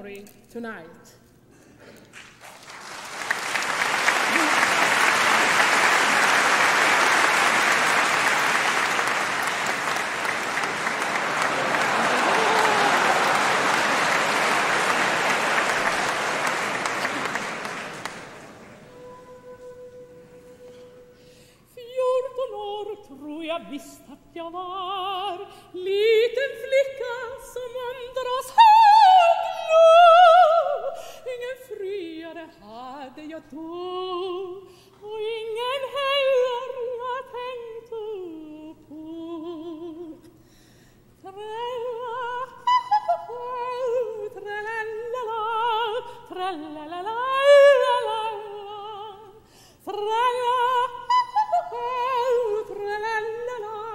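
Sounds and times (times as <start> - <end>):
operatic soprano singing: 18.9 - 40.4, 41.2 - 53.9.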